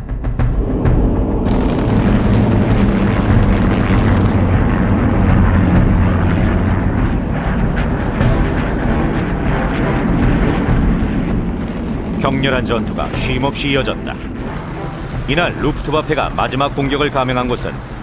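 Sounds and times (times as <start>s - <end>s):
fighter aircraft engines rumbling: 0.6s - 18.0s
machine-gun fire: 1.4s - 4.4s, 11.6s - 13.0s, 14.4s - 15.8s.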